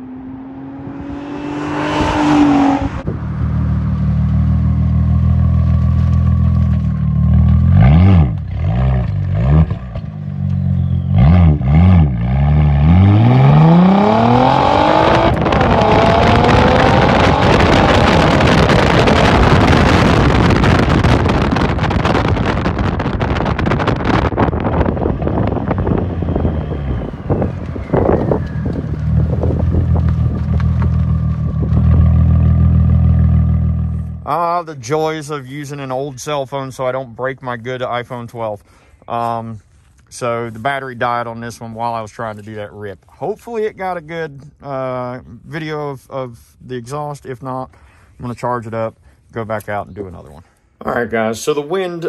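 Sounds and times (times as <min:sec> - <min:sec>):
car exhaust accelerating: 0:00.0 - 0:34.6
wind noise on microphone: 0:00.8 - 0:03.4, 0:13.0 - 0:32.6.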